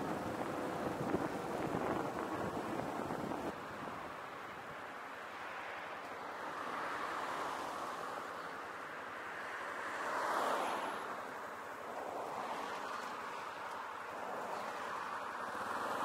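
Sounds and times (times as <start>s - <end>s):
wind noise on microphone: 0.0s - 4.0s
road traffic hiss: 0.0s - 16.0s.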